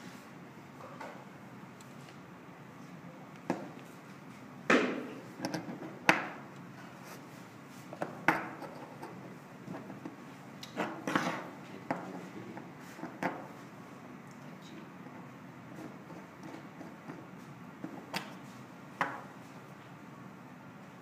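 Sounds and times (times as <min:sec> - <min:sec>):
objects knocking and scraping on a table: 0:04.7 - 0:06.4, 0:08.0 - 0:10.2, 0:10.8 - 0:13.6.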